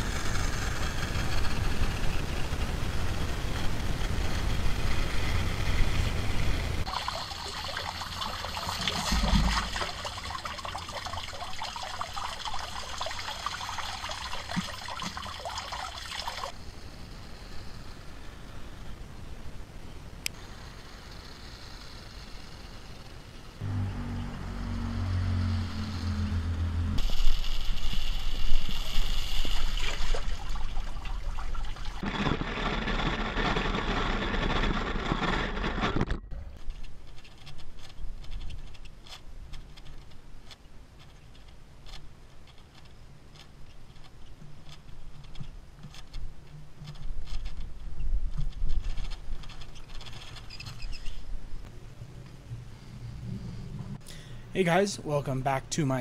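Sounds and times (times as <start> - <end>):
water trickling into drain: 6.8 - 16.6
toy truck on metal grate: 48.5 - 51.2.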